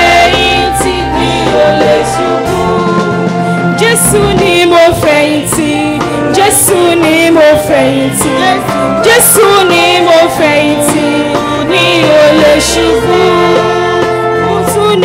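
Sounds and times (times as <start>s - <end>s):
choir singing a hymn: 0.0s - 15.0s
keyboard chords: 0.0s - 15.0s.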